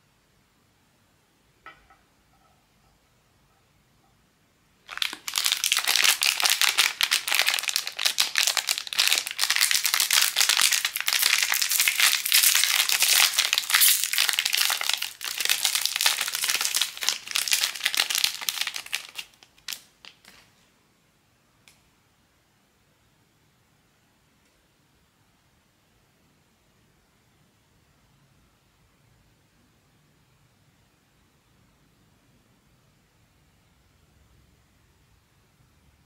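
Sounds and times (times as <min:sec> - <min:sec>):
plastic packaging crinkling: 0:04.8 - 0:20.5.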